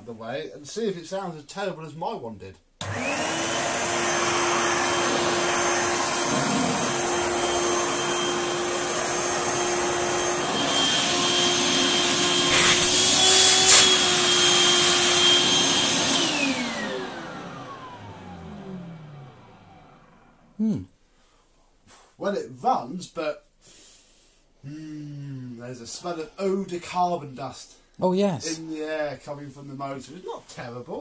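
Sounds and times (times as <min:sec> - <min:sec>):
vacuum cleaner motor running: 0:02.8 - 0:20.4
vacuum motor winding down: 0:02.8 - 0:20.5.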